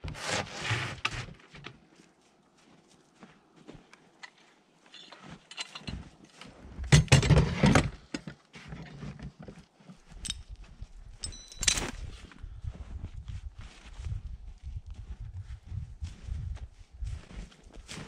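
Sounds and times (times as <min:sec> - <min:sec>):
footsteps crunching in snow: 0:01.8 - 0:06.8, 0:11.8 - 0:18.0.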